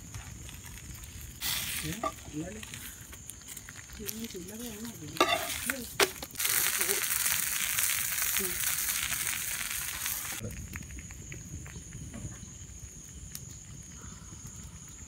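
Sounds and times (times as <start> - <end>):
fish sizzling on hot pan: 0.0 - 11.8.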